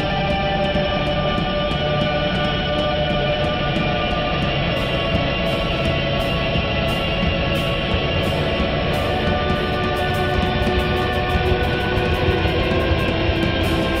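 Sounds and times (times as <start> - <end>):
processed electric guitar drone: 0.0 - 14.0.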